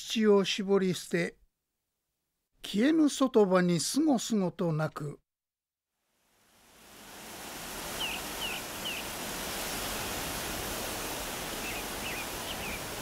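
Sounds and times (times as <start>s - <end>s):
small bird chirping: 8.0s - 9.1s, 11.6s - 13.0s.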